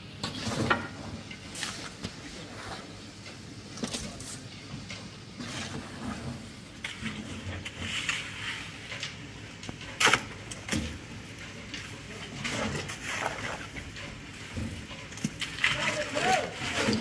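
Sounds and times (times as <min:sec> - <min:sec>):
shovel scraping wet concrete: 0:05.4 - 0:09.2, 0:09.9 - 0:11.0, 0:11.8 - 0:13.9, 0:15.1 - 0:17.0.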